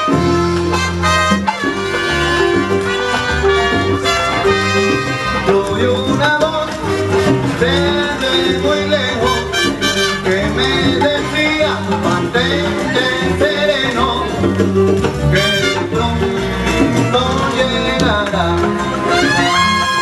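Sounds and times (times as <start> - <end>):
salsa music with singing: 0.0 - 20.0.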